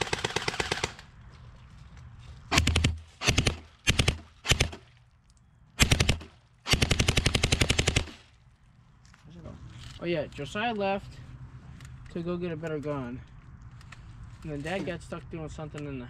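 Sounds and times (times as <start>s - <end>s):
airsoft gun firing bursts: 0.0s - 1.1s, 2.5s - 4.8s, 5.8s - 8.2s.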